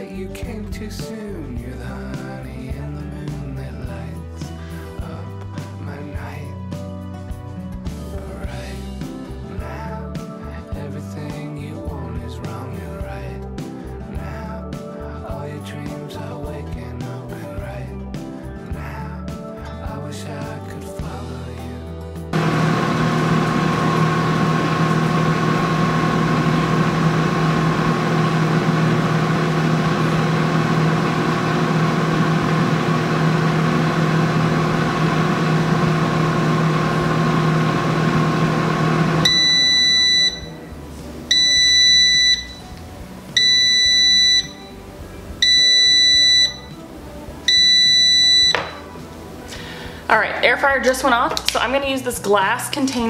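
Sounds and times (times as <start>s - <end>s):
air fryer fan humming: 22.4s - 50.0s
loud beeps: 39.2s - 40.7s, 41.3s - 42.7s, 43.4s - 44.8s, 45.4s - 46.8s, 47.5s - 48.9s.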